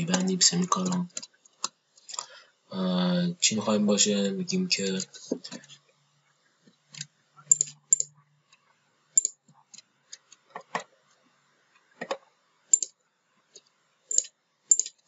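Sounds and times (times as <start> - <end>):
mouse and keyboard clicks: 6.9 - 8.1, 9.2 - 10.4, 12.0 - 12.9, 14.1 - 15.0.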